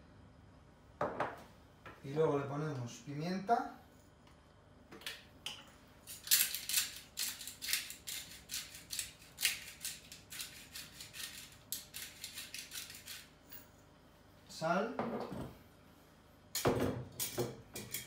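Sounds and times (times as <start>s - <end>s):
pepper mill grinding: 6.0s - 13.6s.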